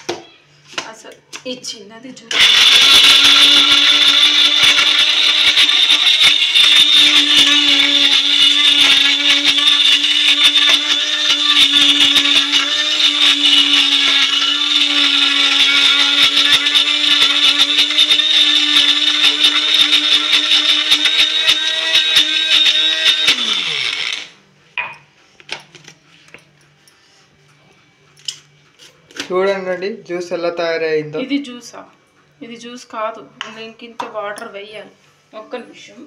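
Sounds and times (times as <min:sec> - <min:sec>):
blender motor whining: 0:02.3 - 0:24.4.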